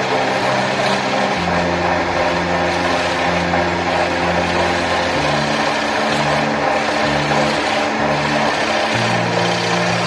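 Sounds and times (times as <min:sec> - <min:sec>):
background music: 0:00.0 - 0:10.0
chisel cutting wood: 0:00.0 - 0:10.0
wood lathe whirring: 0:00.0 - 0:10.0.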